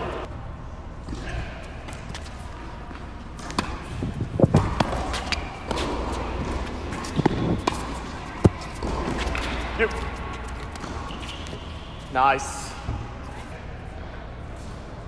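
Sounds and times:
tennis ball bouncing on court: 2.9 - 11.4.

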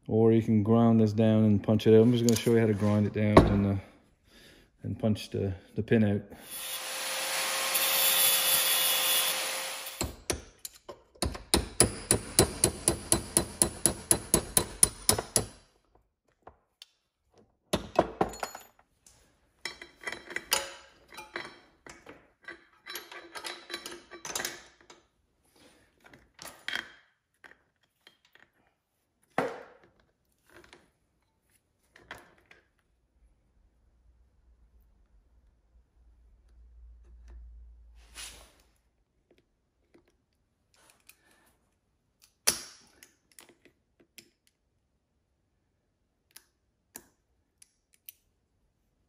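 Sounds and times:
angle grinder grinding metal: 6.4 - 10.0.

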